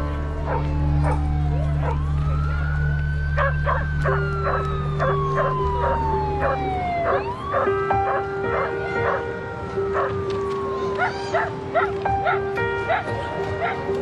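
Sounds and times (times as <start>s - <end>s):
siren wailing: 0.0s - 13.8s
dogs barking: 0.5s - 2.0s, 3.4s - 9.3s, 9.9s - 10.2s, 11.0s - 14.0s.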